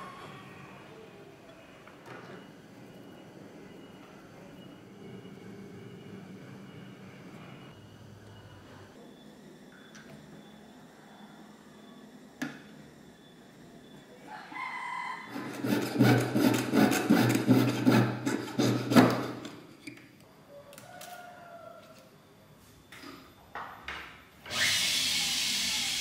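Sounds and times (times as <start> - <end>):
saw rasping through metal: 15.3 - 19.6.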